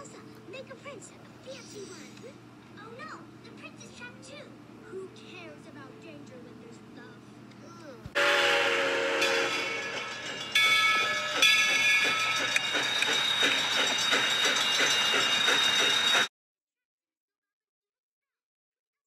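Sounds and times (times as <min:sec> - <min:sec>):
locomotive chuffing beat: 0:08.1 - 0:16.3
steam locomotive whistle: 0:08.2 - 0:10.2
steam hissing: 0:09.3 - 0:16.3.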